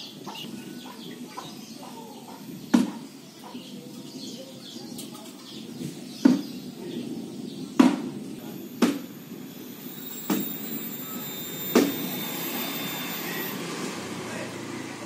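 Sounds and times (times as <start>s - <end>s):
steady background hiss: 6.5s - 14.0s.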